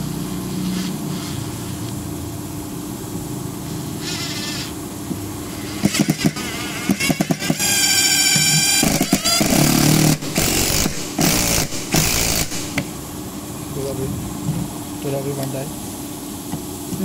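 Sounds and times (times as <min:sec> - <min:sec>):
impact driver hammering: 0:05.8 - 0:12.9.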